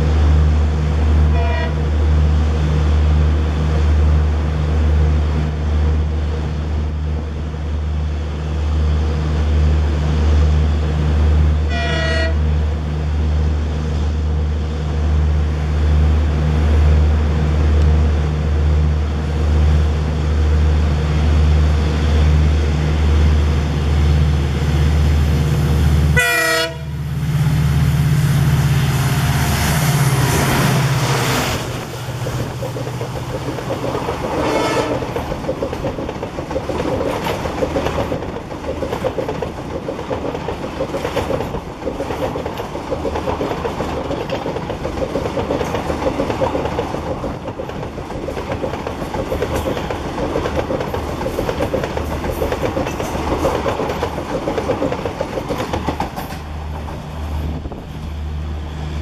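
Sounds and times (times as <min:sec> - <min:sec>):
diesel locomotive engine: 0:00.0 - 0:59.0
train horn blast: 0:01.3 - 0:01.8, 0:11.6 - 0:12.5, 0:26.1 - 0:27.0, 0:34.4 - 0:35.2
clickety-clack of train wheels: 0:29.6 - 0:58.1.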